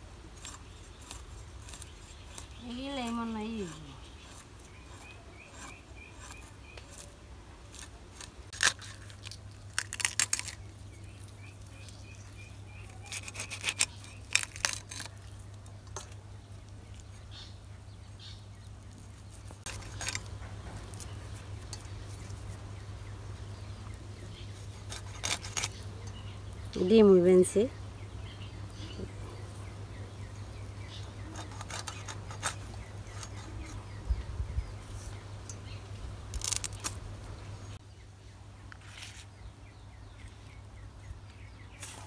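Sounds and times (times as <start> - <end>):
small bird chirping: 0.4 - 42.0
fish scraped against blade: 13.0 - 15.1.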